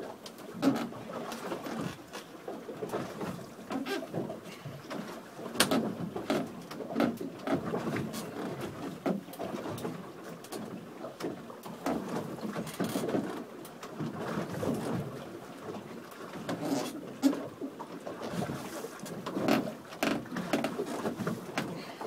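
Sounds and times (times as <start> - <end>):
rope and pulleys creaking: 19.2 - 21.7.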